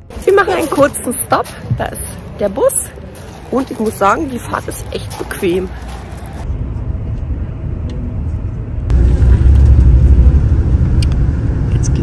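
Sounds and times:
coach engine and tyres rumbling: 0.0 - 12.0.

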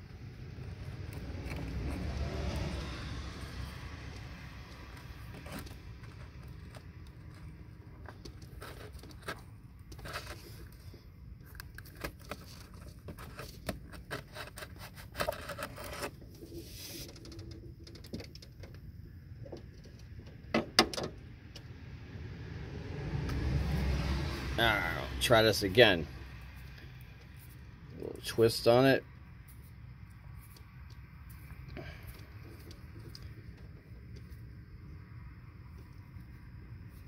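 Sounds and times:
wire stripper clicks and scrapes: 0.5 - 18.8.

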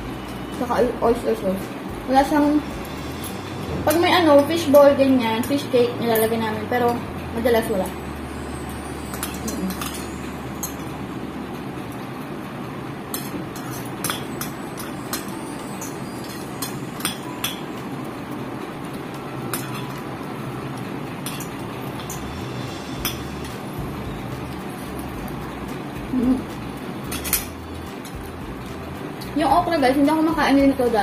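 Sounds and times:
cutlery clinking on plates: 9.1 - 10.9, 13.1 - 17.7, 19.5 - 20.0, 27.1 - 28.2.

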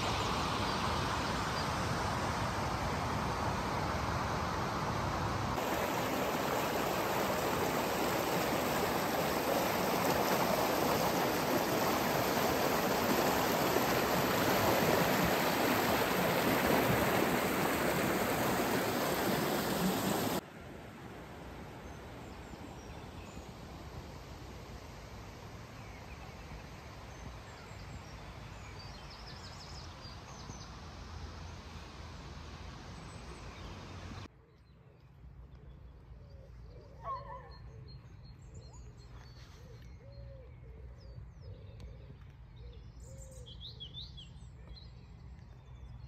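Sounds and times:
river water rushing: 0.0 - 22.2
background hiss: 0.0 - 34.3.

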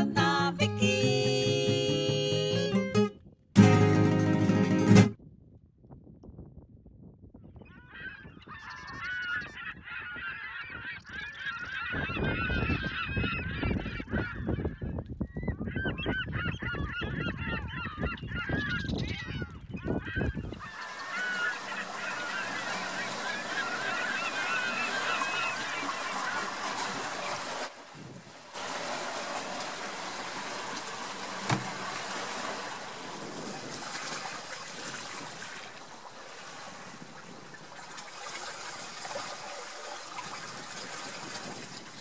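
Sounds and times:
wind rumble on microphone: 5.2 - 20.8, 26.9 - 28.4, 31.4 - 38.0, 40.2 - 42.0
geese honking: 7.9 - 14.6, 16.1 - 27.7
rushing water: 20.5 - 42.0.

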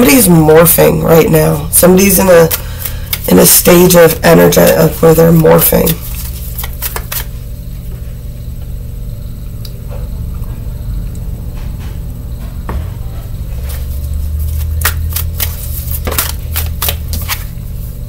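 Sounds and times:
cards clicking: 5.8 - 7.3, 14.5 - 17.5.

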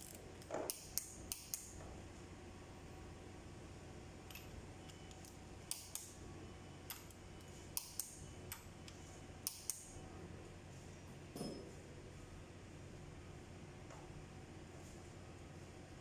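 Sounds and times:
wrench clicking on metal: 0.0 - 1.7, 9.4 - 9.9.

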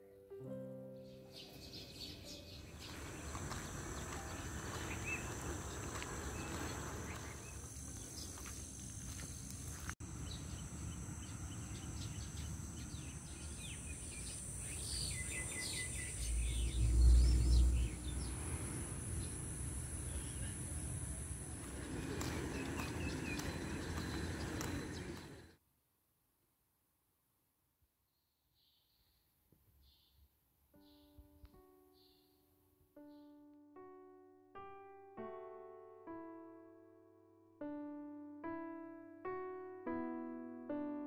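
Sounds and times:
piano notes: 0.0 - 7.0, 30.8 - 41.0
small birds chirping: 1.0 - 25.6
low rumble: 16.1 - 25.4.

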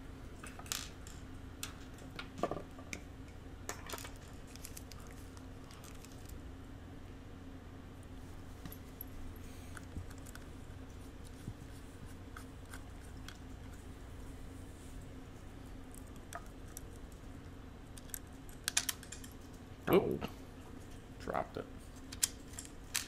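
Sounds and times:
steady low hum: 0.0 - 23.0
clicks and taps of small parts: 22.1 - 23.0.

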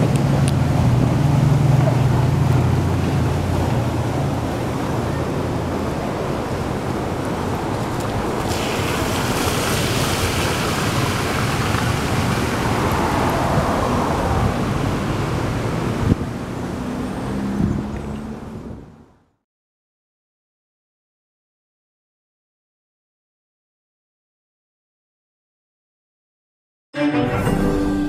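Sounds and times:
street traffic: 0.0 - 19.4
water gushing from burst pipe: 8.3 - 13.4.

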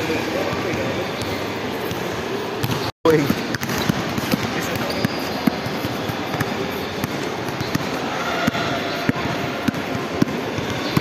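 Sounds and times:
background murmur: 0.0 - 11.0
basketball bouncing on tiled floor: 3.5 - 11.0.

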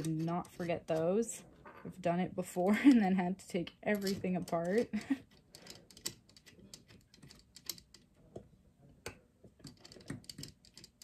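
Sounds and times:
small metal parts clicking: 3.8 - 8.1, 9.6 - 11.0.

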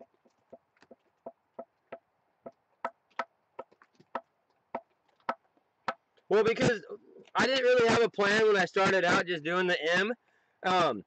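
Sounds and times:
brush tapping on wood: 0.0 - 6.3.

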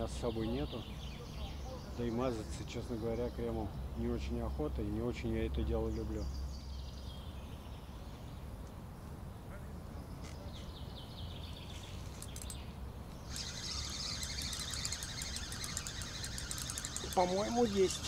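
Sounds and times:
small birds chirping: 0.0 - 18.0
high-pitched rapid chattering: 13.3 - 18.0.

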